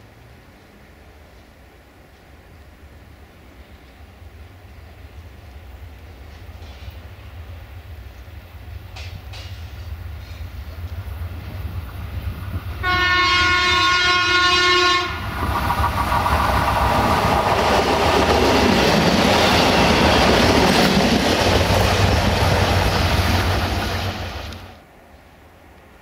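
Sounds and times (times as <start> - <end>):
train engine and wheel rush: 0.0 - 26.0
wheels clicking over rail joints: 8.8 - 12.8
train horn blast: 12.8 - 15.2.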